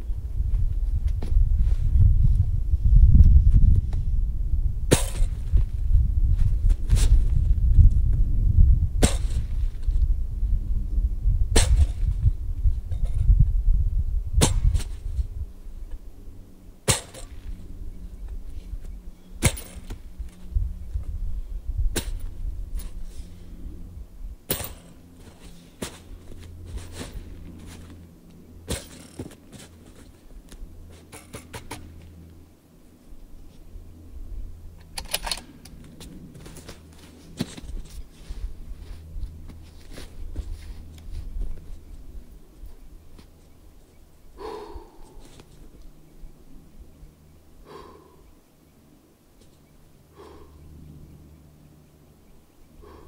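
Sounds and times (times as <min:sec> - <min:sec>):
low steady rumble: 0:00.0 - 0:53.0
handling noise: 0:34.8 - 0:41.8.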